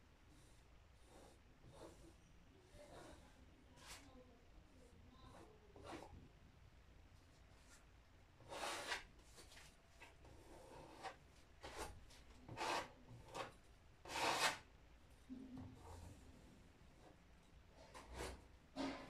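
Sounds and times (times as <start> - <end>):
hand rubbing painted panel: 0.3 - 4.2, 8.4 - 14.7.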